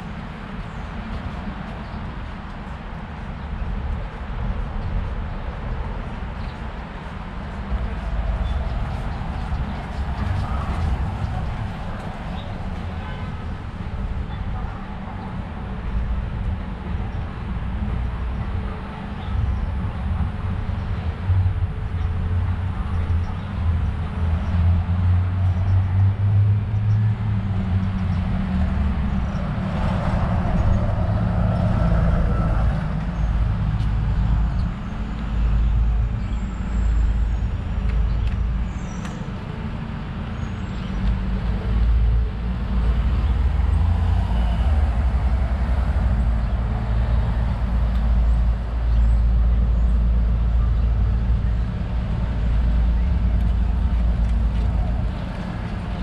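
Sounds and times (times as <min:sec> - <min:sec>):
low rumble of passing vehicles: 0:00.0 - 0:56.0
louder vehicle passing: 0:24.6 - 0:34.5, 0:41.2 - 0:50.6.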